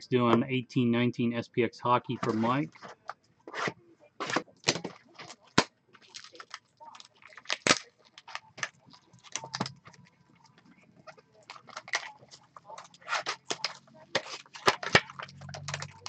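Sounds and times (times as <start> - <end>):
plastic wrap crinkling and tearing: 4.2 - 16.0.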